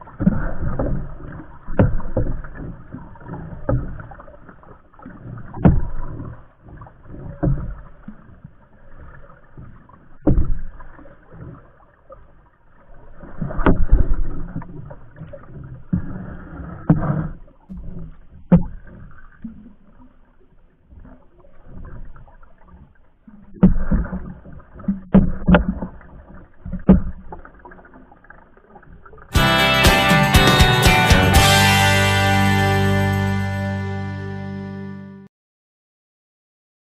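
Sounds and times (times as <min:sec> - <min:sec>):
paddle stroking water: 0:00.0 - 0:33.4
water splashing: 0:00.0 - 0:33.5
music: 0:29.4 - 0:35.3.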